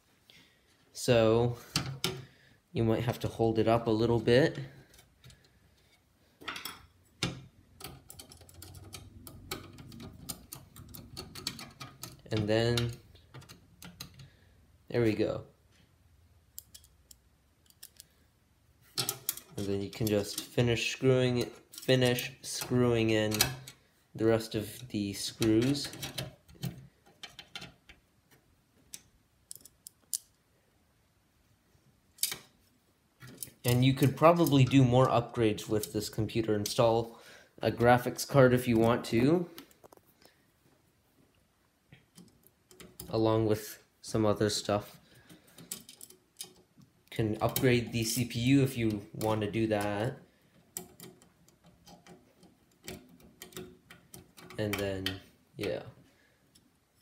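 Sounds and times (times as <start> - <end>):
screw driving metal clicks: 6.6 - 14.3, 16.6 - 18.1, 18.9 - 20.6, 21.4 - 23.8, 28.9 - 30.3, 50.7 - 55.2.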